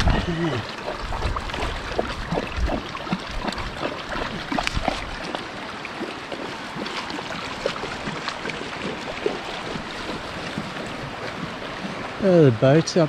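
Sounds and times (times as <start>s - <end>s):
wind rumble on microphone: 0.0s - 5.4s
river water rushing and lapping: 0.0s - 13.0s.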